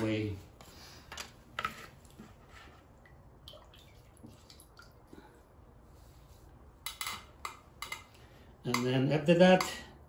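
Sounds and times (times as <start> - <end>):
faint wet drips: 3.0 - 5.5.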